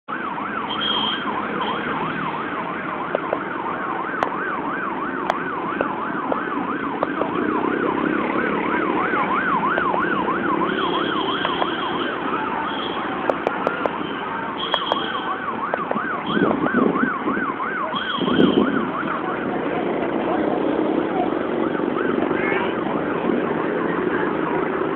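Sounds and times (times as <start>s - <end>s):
electronic siren warbling: 0.7s - 19.5s
passing motorcycle engines: 1.2s - 14.6s, 15.3s - 24.9s.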